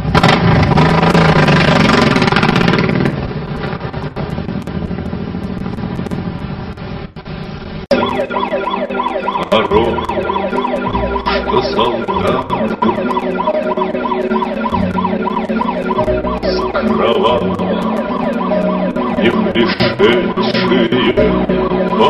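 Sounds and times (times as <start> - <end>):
vehicle engine running: 0.0 - 7.8
siren wailing: 7.9 - 22.0.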